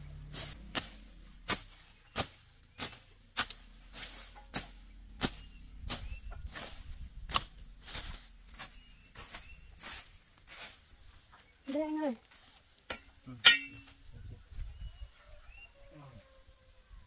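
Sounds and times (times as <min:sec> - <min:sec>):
hoe chopping into earth: 0:00.3 - 0:09.4.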